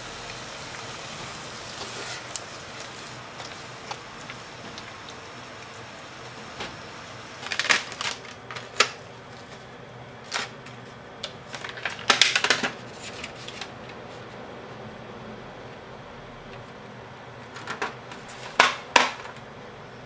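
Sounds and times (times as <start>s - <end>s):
plastic food pack crackling: 0.1s - 10.6s, 11.2s - 13.8s.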